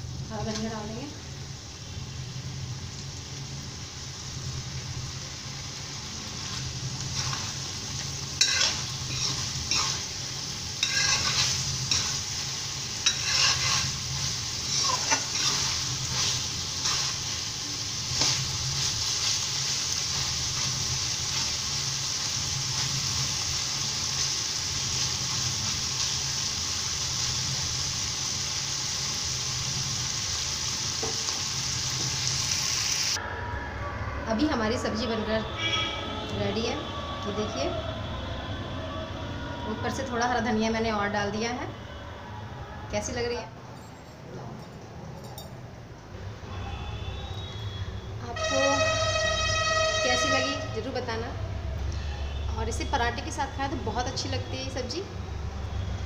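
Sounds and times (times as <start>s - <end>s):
vegetables sizzling: 0.0s - 33.2s, 48.3s - 56.0s
metal spoon scraping pan: 8.4s - 10.2s, 10.8s - 12.4s, 13.0s - 17.3s.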